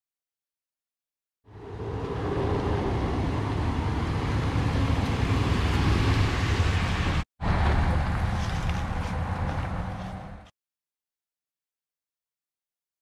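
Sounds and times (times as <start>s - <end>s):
truck engine and tyres rumbling: 1.5s - 10.5s.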